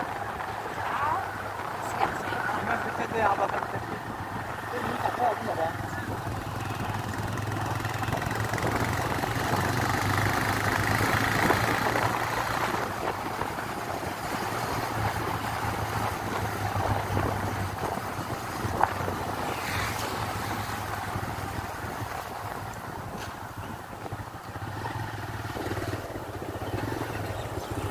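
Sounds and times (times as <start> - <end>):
motorcycle engine humming: 0.0 - 27.9
wind and tyre noise: 0.0 - 27.9.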